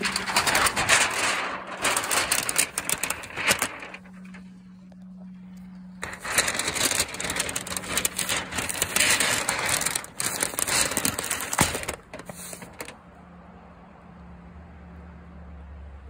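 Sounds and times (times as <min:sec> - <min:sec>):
plastic sheet crinkling: 0:00.0 - 0:04.7, 0:05.9 - 0:13.0
faint steady hum: 0:00.0 - 0:12.2.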